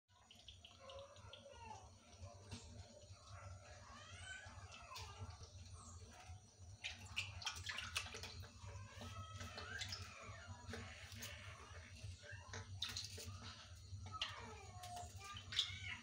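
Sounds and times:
water splashing in a tub: 0.1 - 16.0.

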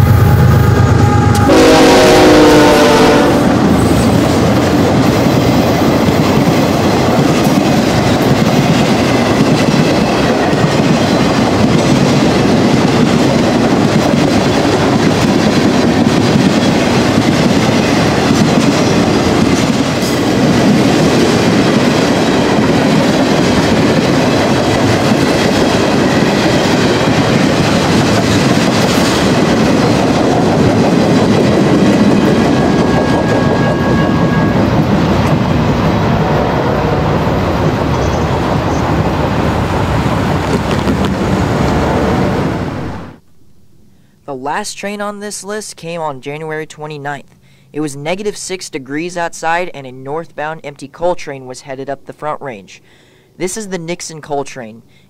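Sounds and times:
freight train rumbling past: 0.0 - 43.2.

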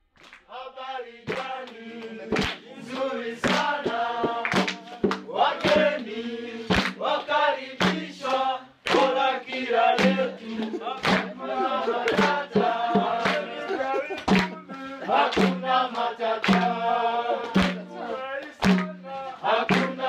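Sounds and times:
chanting voices: 0.5 - 20.0
sharp drum hits: 18.6 - 19.0.

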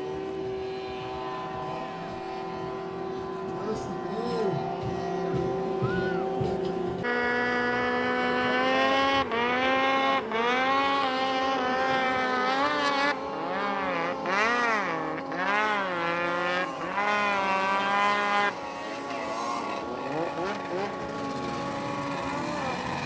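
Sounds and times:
engine running steadily: 0.0 - 23.0
snowmobile engine revving: 0.0 - 23.0.

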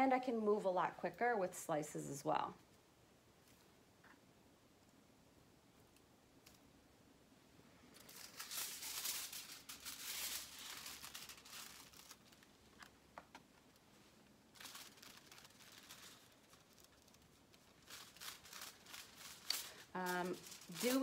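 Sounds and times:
foil rustling and crinkling: 7.9 - 21.0.

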